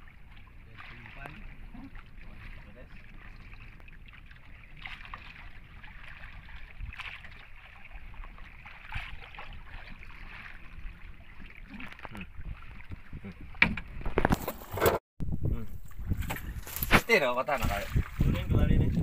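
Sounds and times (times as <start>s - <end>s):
water sloshing against boat hull: 0.0s - 15.0s, 15.6s - 19.0s
wind rumble on microphone: 5.6s - 8.2s, 12.1s - 14.4s, 15.2s - 19.0s.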